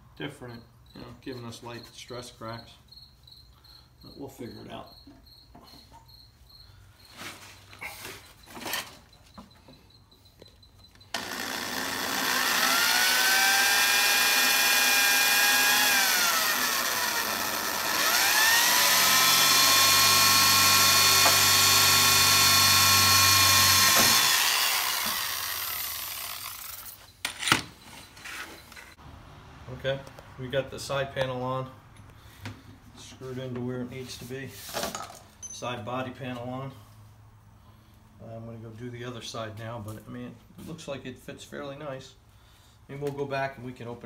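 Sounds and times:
power drill whining: 11.0s - 27.5s.

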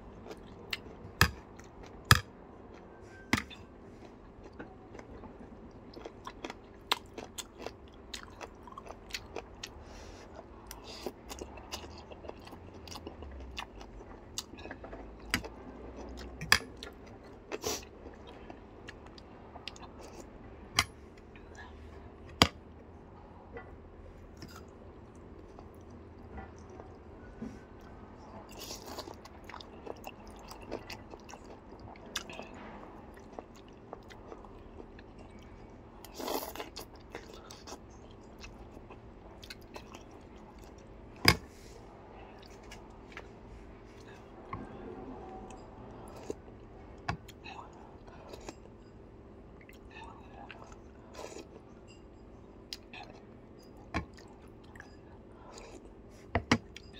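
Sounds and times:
faint steady hum: 0.0s - 56.9s
person chewing: 3.4s - 21.6s, 24.4s - 26.0s, 28.5s - 32.5s, 33.1s - 44.7s, 45.5s - 48.8s, 49.6s - 51.7s, 52.7s - 56.9s.

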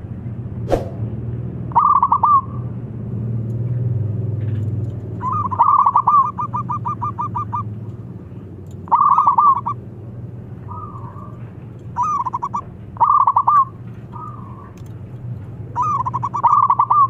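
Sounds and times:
dove cooing: 5.2s - 7.7s, 8.9s - 9.8s, 10.6s - 14.8s, 15.7s - 17.0s.

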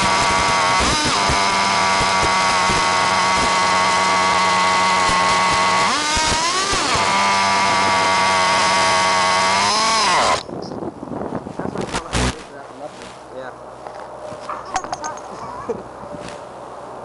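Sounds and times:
small engine high-pitched whine: 0.0s - 10.8s, 11.8s - 12.5s.

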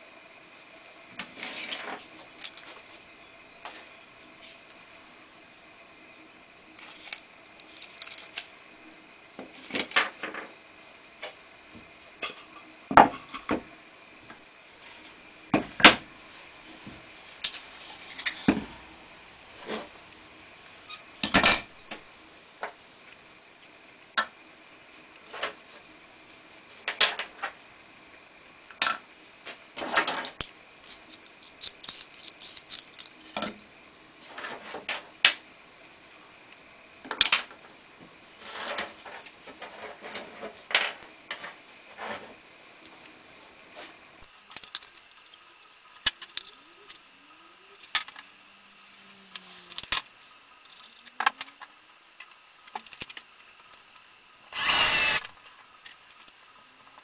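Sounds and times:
faint high whine: 54.4s - 55.5s.

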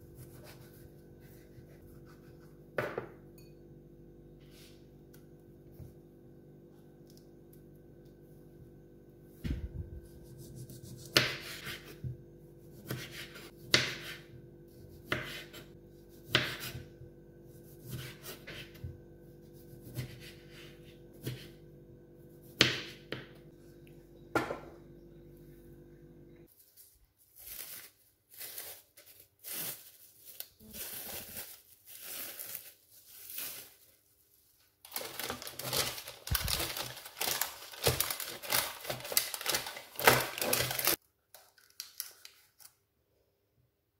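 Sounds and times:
crinkling paper and plastic wrap: 26.5s - 42.8s.

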